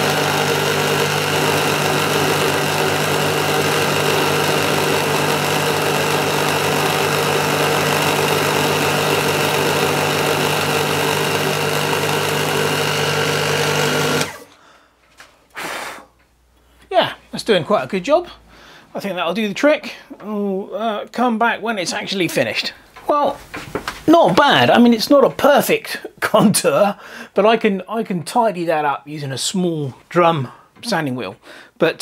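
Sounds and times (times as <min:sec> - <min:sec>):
milling machine cutting wood: 0:00.0 - 0:14.5.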